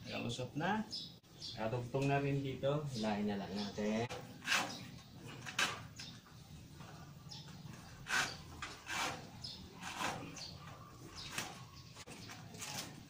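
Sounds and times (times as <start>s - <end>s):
cable scraping through conduit: 8.0s - 13.0s.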